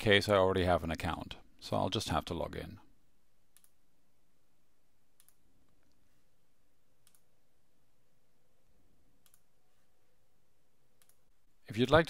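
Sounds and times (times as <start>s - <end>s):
computer mouse clicks: 3.5s - 3.8s, 5.2s - 6.0s, 7.0s - 7.3s, 9.2s - 9.5s, 11.0s - 11.3s.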